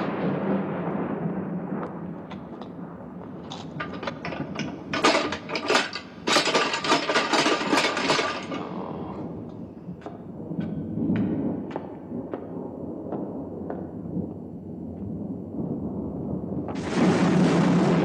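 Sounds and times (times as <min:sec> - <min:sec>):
metal chains rattling: 0:03.4 - 0:08.8.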